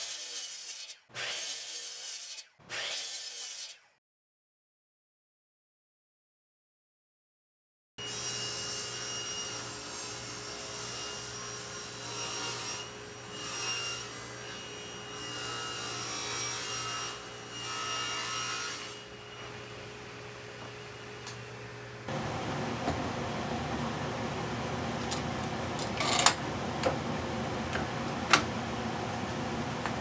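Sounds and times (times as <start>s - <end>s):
table saw cutting plywood: 0.0s - 3.9s, 8.0s - 19.8s.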